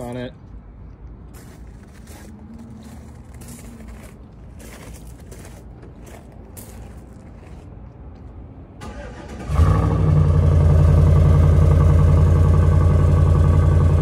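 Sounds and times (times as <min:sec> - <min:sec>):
engine starter cranking: 0:08.8 - 0:09.8
pickup engine idling: 0:08.9 - 0:14.0.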